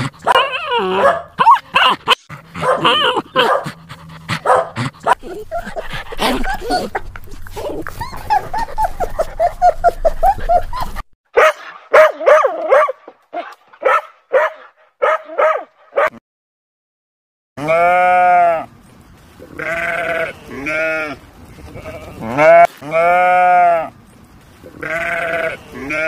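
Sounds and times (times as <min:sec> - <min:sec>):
dog yelping: 0:00.0 - 0:03.8, 0:04.4 - 0:16.1
dog barking: 0:00.2 - 0:03.8, 0:04.4 - 0:05.2, 0:11.3 - 0:16.2
goat bleating: 0:17.6 - 0:18.7, 0:19.5 - 0:23.9, 0:24.7 - 0:26.0.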